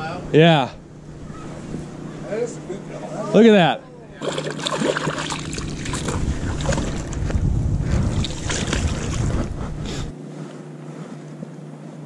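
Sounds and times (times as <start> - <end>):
fish splashing in water: 4.2 - 7.2, 8.1 - 9.4
wind buffeting microphone: 5.5 - 10.2.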